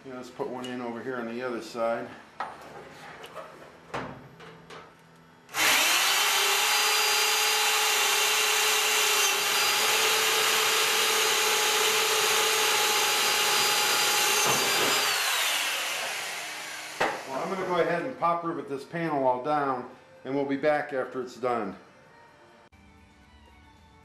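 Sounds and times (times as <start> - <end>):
power drill drilling sheet metal: 5.5 - 17.9.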